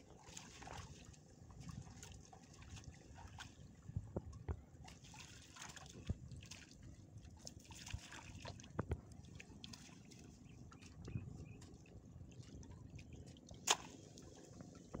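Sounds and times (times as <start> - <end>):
water sloshing and dripping: 0.0 - 15.0
sharp water splashes: 13.6 - 14.4.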